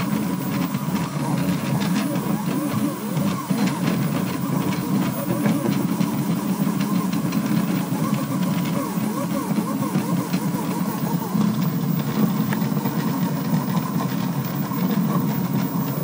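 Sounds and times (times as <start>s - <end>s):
stepper motors whining: 0.0s - 16.0s.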